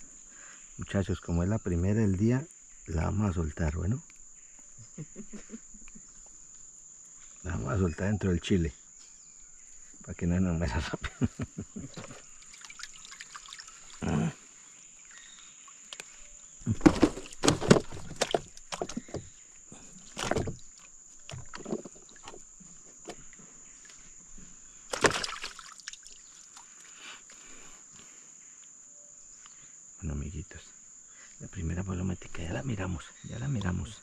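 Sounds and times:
water sloshing and splashing: 12.0s - 14.1s, 16.7s - 24.0s, 24.9s - 26.9s.

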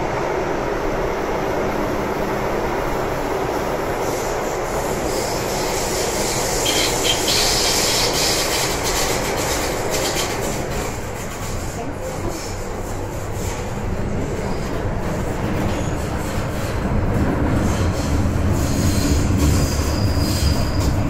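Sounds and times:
train wheels rumbling on rail: 0.0s - 21.0s
wheel squeal: 5.0s - 10.6s, 17.6s - 21.0s.

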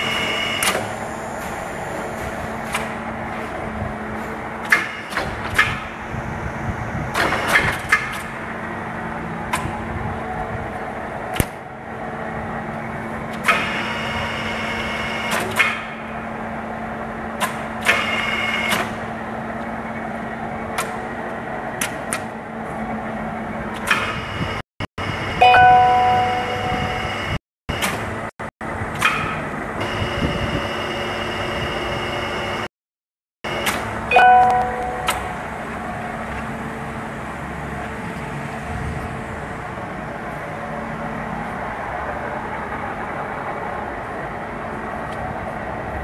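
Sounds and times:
milling machine humming: 29.5s - 32.7s
metallic lever clicks and clunks: 33.6s - 35.3s.

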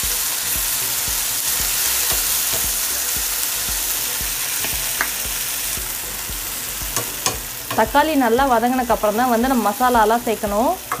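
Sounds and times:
vegetables sizzling in hot oil: 0.0s - 11.0s
metal spoon scraping a pan: 6.9s - 7.9s.

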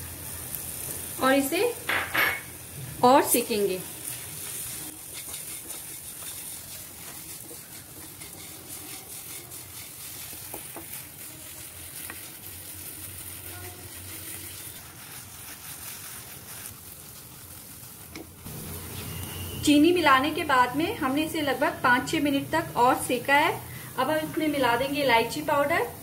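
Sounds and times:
light sizzle: 0.0s - 26.0s
wooden spatula scraping a pan: 4.0s - 19.6s.

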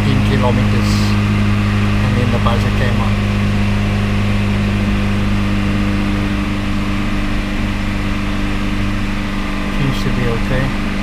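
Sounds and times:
car engine at steady revs: 0.0s - 11.0s.

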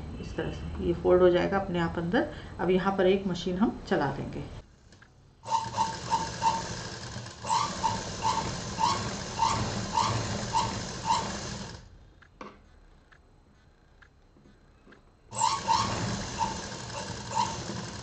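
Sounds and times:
sewing machine stitching: 5.4s - 11.9s, 15.3s - 18.0s.

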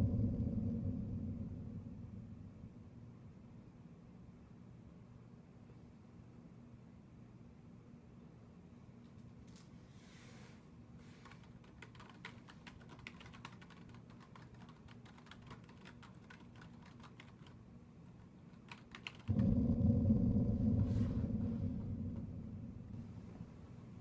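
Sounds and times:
loud low rumble: 0.0s - 3.3s, 19.3s - 24.0s
keyboard typing clicks: 11.2s - 17.6s, 18.5s - 19.3s.

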